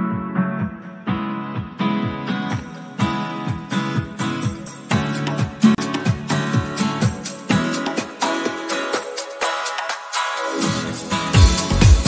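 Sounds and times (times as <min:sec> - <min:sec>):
electronic dance music: 0:00.0 - 0:12.0
deep kick drum beat: 0:11.4 - 0:12.0.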